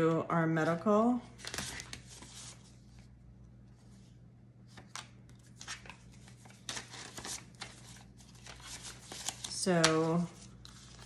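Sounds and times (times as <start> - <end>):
paper banknotes rustling: 1.4 - 2.8, 4.7 - 11.0.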